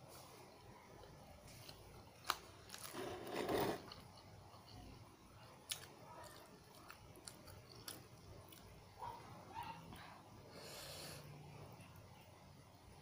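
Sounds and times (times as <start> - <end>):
slurping noodles: 2.9 - 3.9.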